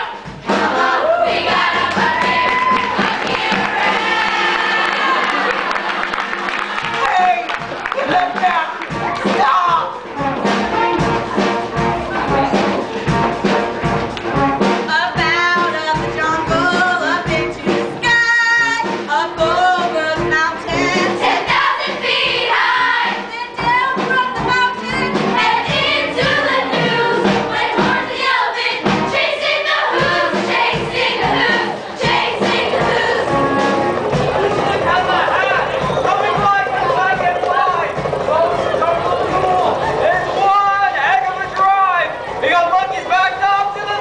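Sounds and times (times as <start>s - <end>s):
upbeat instrumental accompaniment: 0.0s - 44.0s
cast singing together: 0.1s - 5.8s, 14.9s - 35.3s.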